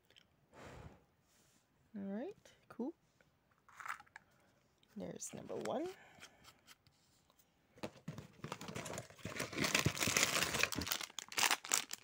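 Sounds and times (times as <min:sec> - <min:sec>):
plastic wrapper crinkling: 0:08.4 - 0:12.0.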